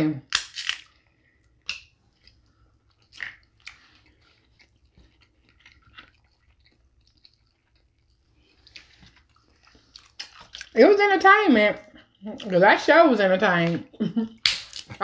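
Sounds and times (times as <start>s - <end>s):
crab shells clicking and snapping: 0.2s - 2.4s, 3.0s - 3.9s, 10.0s - 10.8s, 14.4s - 15.0s
chewing: 0.8s - 10.8s.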